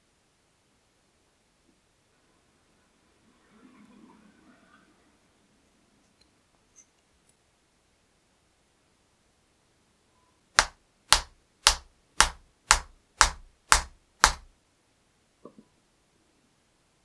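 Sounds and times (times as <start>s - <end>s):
hammer striking chisel handle: 10.6s - 14.5s.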